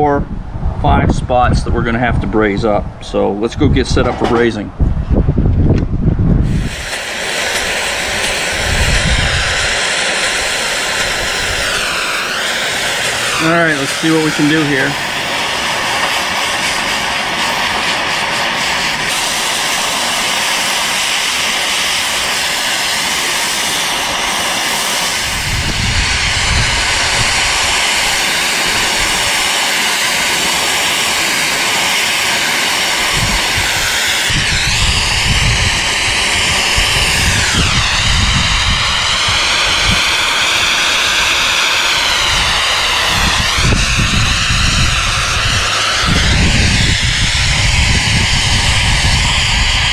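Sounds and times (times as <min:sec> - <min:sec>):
high whine sweeping: 0:00.0 - 0:49.9
low rumble: 0:00.2 - 0:06.9, 0:07.6 - 0:19.3, 0:25.1 - 0:29.4, 0:32.9 - 0:49.9
plasma torch hissing: 0:06.4 - 0:49.9.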